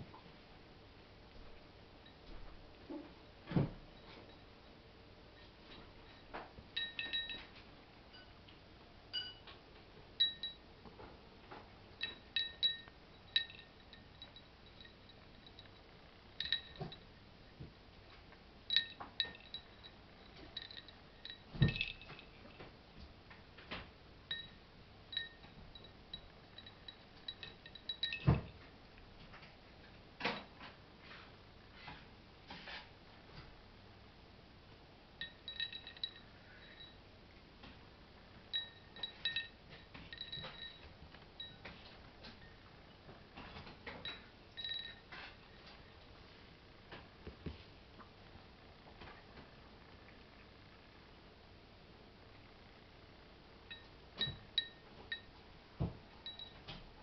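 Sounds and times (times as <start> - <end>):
ceramic plate clinking: 6.1 - 7.5, 12.0 - 15.8.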